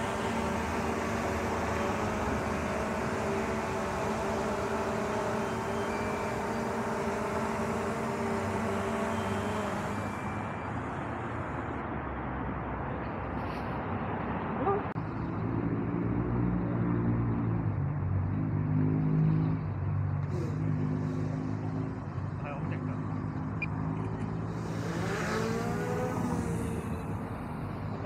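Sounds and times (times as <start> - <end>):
drone propellers buzzing whine: 0.0 - 11.8, 20.2 - 28.0.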